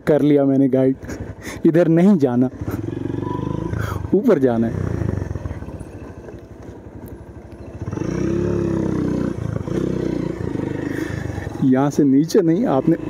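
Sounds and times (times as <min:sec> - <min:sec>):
motorcycle engine running: 0:00.0 - 0:13.0.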